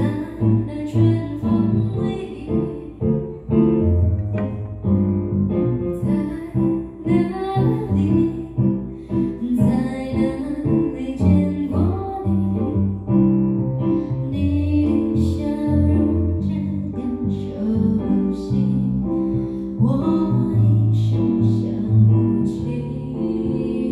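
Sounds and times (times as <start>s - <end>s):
woman singing into microphone: 0.0s - 3.2s, 6.0s - 8.7s, 9.4s - 12.8s, 14.3s - 19.2s, 19.8s - 23.9s
keyboard playing: 3.1s - 6.0s.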